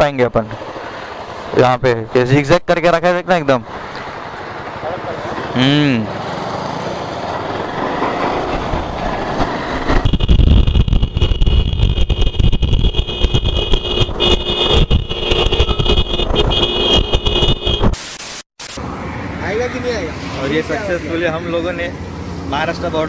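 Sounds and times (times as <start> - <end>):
road and engine noise: 0.0 - 23.0
wind buffeting microphone: 6.9 - 17.9.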